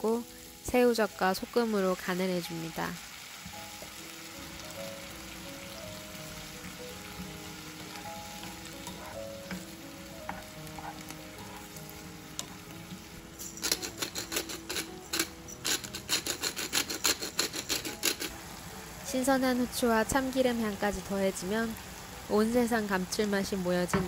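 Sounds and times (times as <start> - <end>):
vegetables sizzling in a frying pan: 0.0 - 24.0
spoon stirring in pan: 7.5 - 12.7
pepper mill grinding clicks: 13.6 - 18.3.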